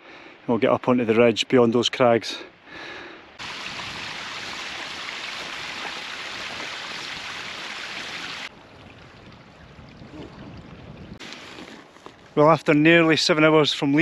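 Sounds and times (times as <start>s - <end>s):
stream water rushing: 3.4s - 9.6s.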